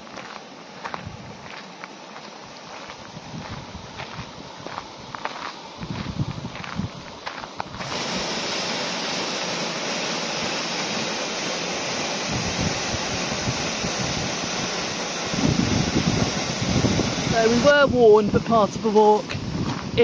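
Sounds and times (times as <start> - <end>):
footsteps on gravel: 0.0 - 7.8, 19.3 - 20.0
wind buffeting microphone: 0.8 - 1.6, 2.7 - 7.9, 12.3 - 20.0
waterfall rushing into pool: 7.5 - 20.0.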